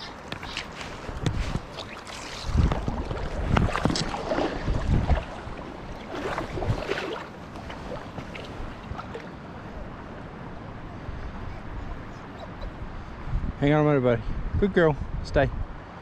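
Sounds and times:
river water splashing: 0.0s - 10.8s
wind buffeting microphone: 0.0s - 16.0s.

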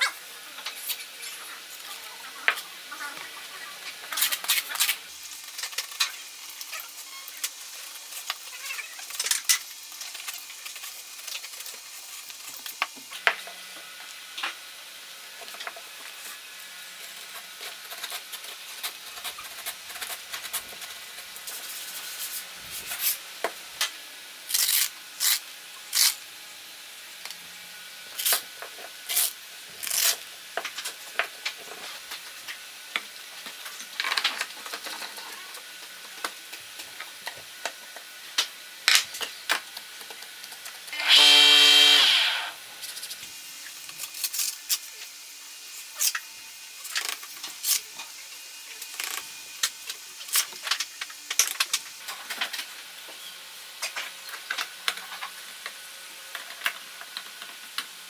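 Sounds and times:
knife scraping sandpaper: 24.5s - 26.2s.

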